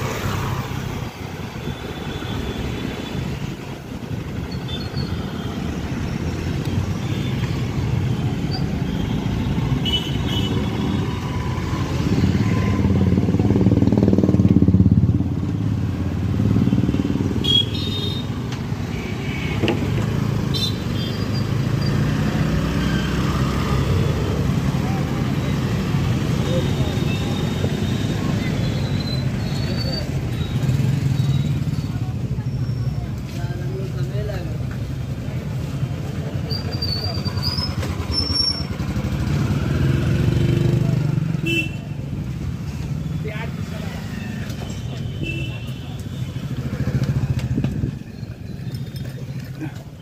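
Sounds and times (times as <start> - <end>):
motorcycle engines running: 9.5 - 18.9, 19.6 - 45.1, 46.0 - 50.0.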